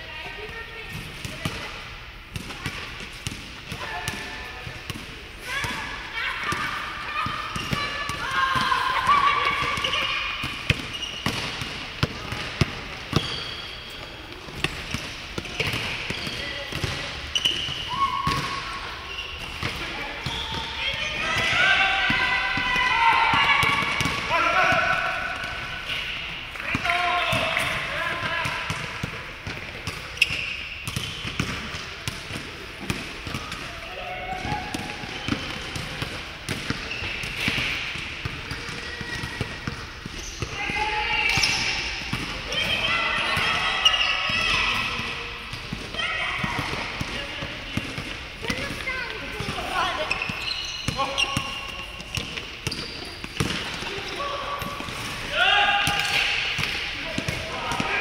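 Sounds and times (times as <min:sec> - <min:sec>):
basketball bouncing on court floor: 0:06.4 - 0:18.6, 0:19.5 - 0:25.7, 0:26.6 - 0:55.2.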